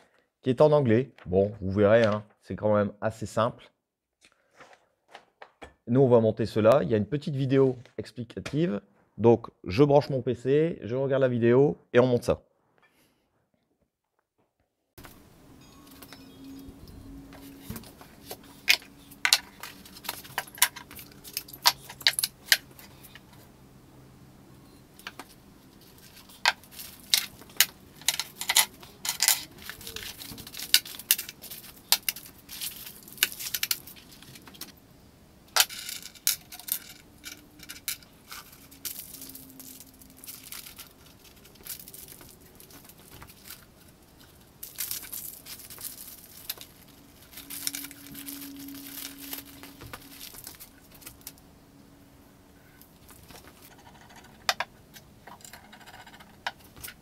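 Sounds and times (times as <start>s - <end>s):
metal parts clinking on workbench: 17.3s - 23.3s, 25.9s - 34.7s, 35.6s - 43.7s, 44.6s - 51.3s
plastic bags crinkling and tearing: 17.4s - 23.0s, 25.0s - 34.7s, 37.4s - 51.4s.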